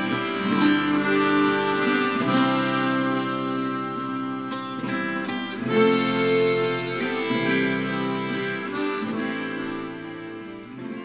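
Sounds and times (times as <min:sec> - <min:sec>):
acoustic guitar: 0:00.0 - 0:11.0
harmonica playing long notes: 0:00.0 - 0:11.0.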